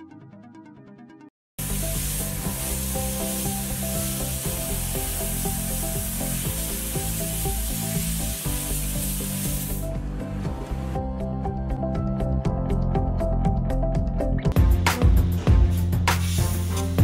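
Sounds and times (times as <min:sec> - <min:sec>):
laser cutter hissing: 0:01.6 - 0:09.8.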